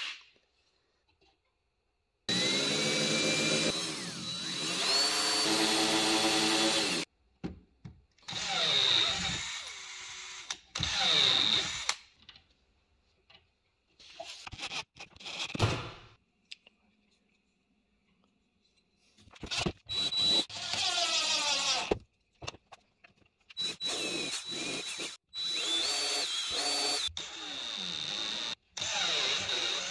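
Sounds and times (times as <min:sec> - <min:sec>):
cordless drill boring into plastic: 0:02.3 - 0:07.1, 0:08.3 - 0:12.0, 0:19.5 - 0:22.0, 0:23.5 - 0:29.9.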